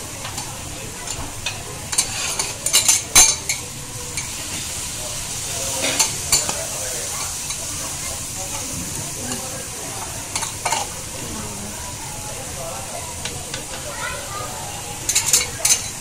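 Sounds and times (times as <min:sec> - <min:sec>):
meat sizzling on griddle: 0:00.0 - 0:16.0
metal spatula scraping griddle: 0:01.9 - 0:02.6.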